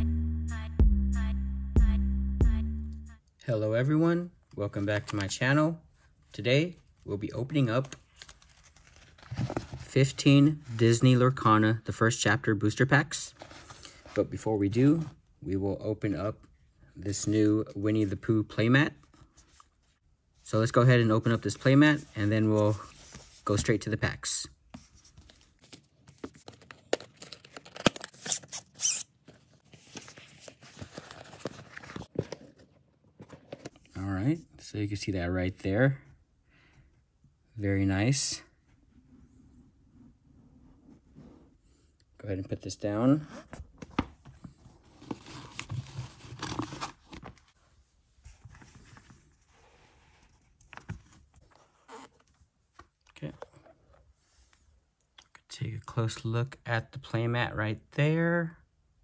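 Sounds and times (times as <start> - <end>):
soft handling noise: 6.2 - 11.1, 16.1 - 23.9, 24.6 - 34.0, 43.4 - 54.8
packaging rustling: 25.6 - 33.7.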